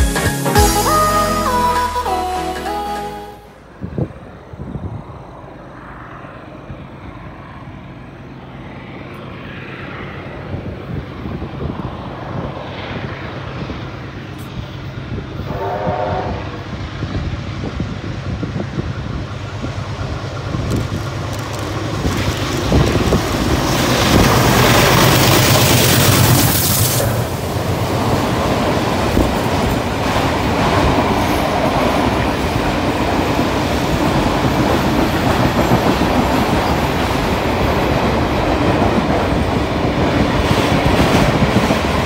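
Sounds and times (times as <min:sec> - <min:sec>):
brief pitched note: 0:00.0 - 0:03.6
train engine rumble: 0:00.0 - 0:42.0.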